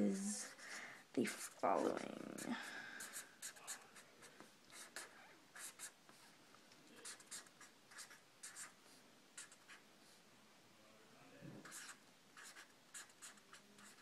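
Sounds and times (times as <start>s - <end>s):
marker scratching on paper: 1.2s - 6.3s, 7.0s - 10.2s, 11.6s - 14.0s.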